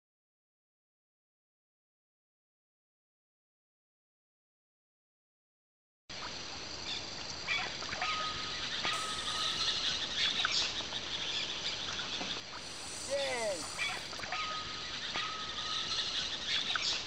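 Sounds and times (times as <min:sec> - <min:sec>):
high-pitched drone: 0:09.0 - 0:09.9
birds calling: 0:09.0 - 0:10.2, 0:12.6 - 0:14.2.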